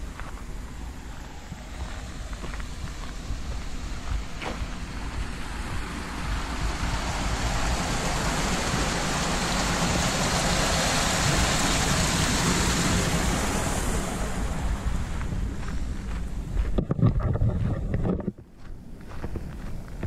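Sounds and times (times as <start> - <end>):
water rushing into concrete box: 6.9 - 14.6.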